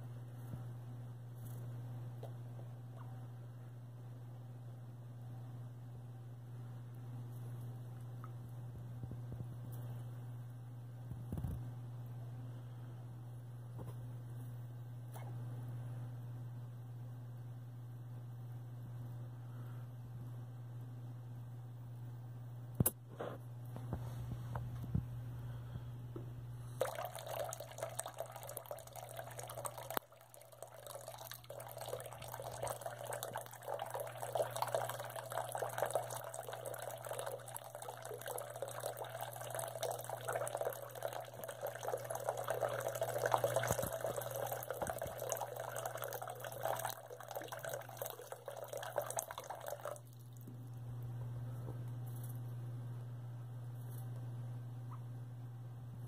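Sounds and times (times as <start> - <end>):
steady low hum: 0.0 - 56.0
tap water running into sink: 26.8 - 50.0.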